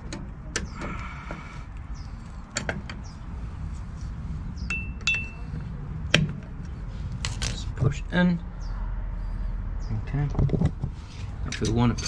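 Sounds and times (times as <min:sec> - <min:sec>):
metal parts clicking and clinking: 0:11.4 - 0:12.0.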